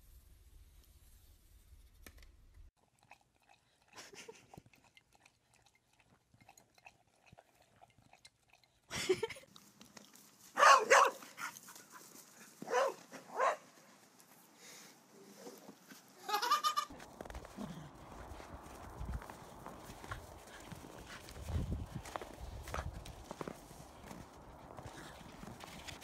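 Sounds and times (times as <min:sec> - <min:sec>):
dog chewing: 0:02.8 - 0:08.9
dog barking: 0:10.6 - 0:11.5, 0:12.6 - 0:13.6.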